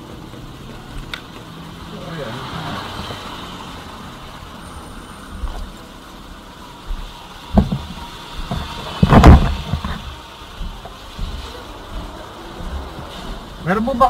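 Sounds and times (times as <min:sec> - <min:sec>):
road traffic rumble: 0:00.0 - 0:14.0
rustling: 0:06.9 - 0:13.5
knocks: 0:07.5 - 0:11.4.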